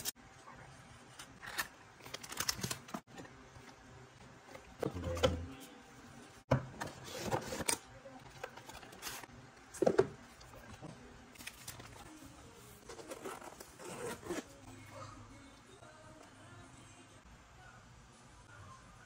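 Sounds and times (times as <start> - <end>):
packaging handling noises: 1.3 - 3.2.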